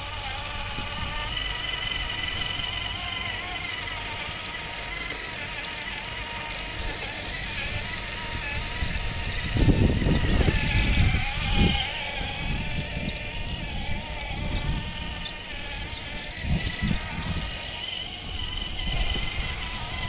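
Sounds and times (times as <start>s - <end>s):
electric motor whine: 0.0s - 20.0s.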